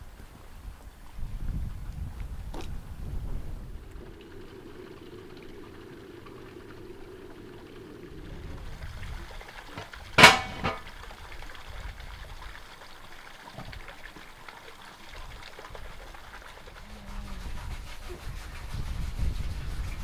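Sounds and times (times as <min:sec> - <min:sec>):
metal cauldron clang: 0:10.2 - 0:10.9.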